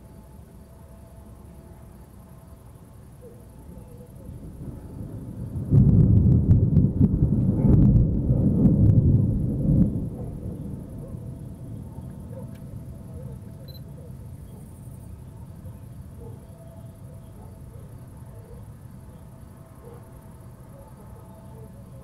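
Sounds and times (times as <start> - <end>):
faint low background hum: 0.0 - 22.0
thunder rumbling: 4.2 - 13.6.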